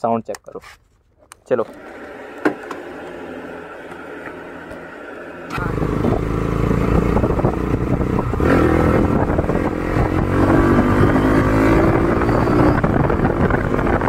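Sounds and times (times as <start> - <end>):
motorcycle engine revving: 1.7 - 14.0.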